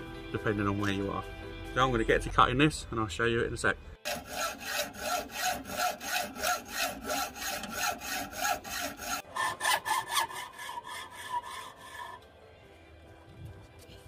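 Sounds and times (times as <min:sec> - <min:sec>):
hacksaw cutting metal bar: 0:04.1 - 0:12.2.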